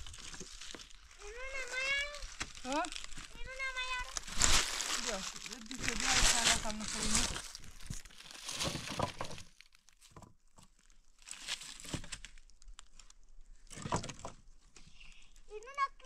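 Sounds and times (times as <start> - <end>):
dry leaves crackling: 0.0 - 10.0, 10.8 - 13.1
branches scraping and snapping: 0.0 - 15.3.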